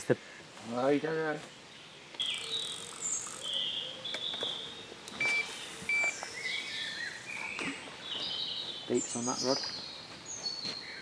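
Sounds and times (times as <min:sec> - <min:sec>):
songbirds chirping and whistling: 0:00.2 - 0:11.0
short electronic beeps: 0:05.2 - 0:06.2.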